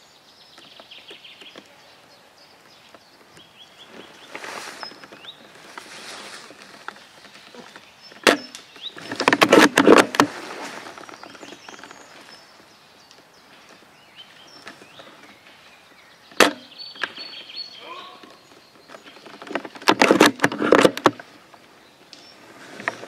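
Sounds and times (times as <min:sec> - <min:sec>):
airsoft gun crack: 0:16.3 - 0:17.2.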